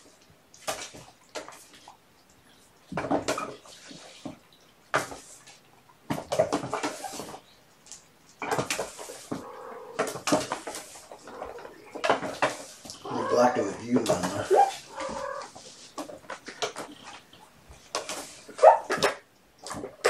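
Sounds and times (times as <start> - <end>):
kittens scuffling and scratching: 5.0 - 19.9.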